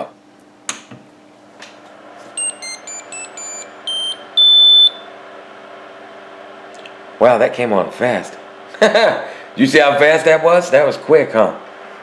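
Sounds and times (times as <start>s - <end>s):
fans humming: 0.0s - 12.0s
electronic startup beeps: 2.4s - 5.0s
long loud beep: 2.4s - 5.1s.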